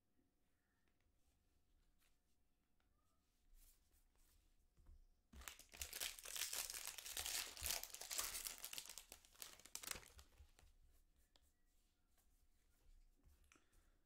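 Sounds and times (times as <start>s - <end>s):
foil wrapper tearing and crinkling: 5.4s - 10.4s.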